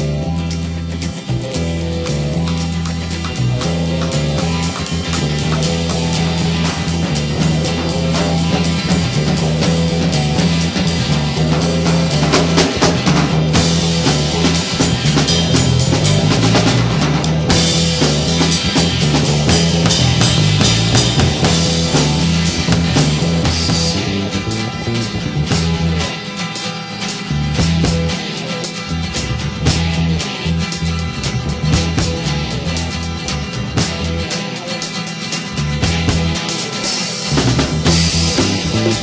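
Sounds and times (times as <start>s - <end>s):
sustained bass line: 0.0s - 26.4s, 27.1s - 34.5s, 35.5s - 36.6s, 37.3s - 39.0s
drums keeping a steady beat: 0.0s - 39.0s
guitar: 0.0s - 39.0s.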